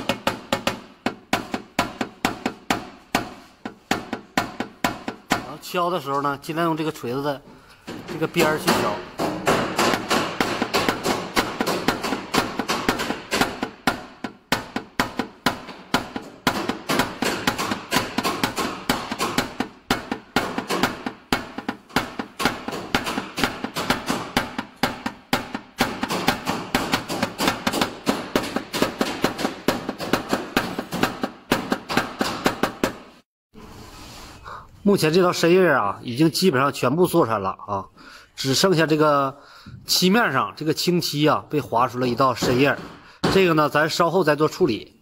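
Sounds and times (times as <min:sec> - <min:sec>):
hammer tapping on sheet metal: 0:00.0 - 0:05.6, 0:07.9 - 0:33.2.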